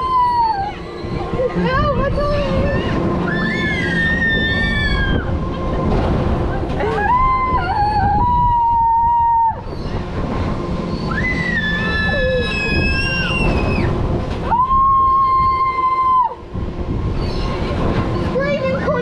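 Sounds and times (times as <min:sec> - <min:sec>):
children screaming: 0:00.0 - 0:05.4, 0:06.8 - 0:10.2, 0:10.9 - 0:16.4
rush of air and ride noise: 0:00.0 - 0:19.0.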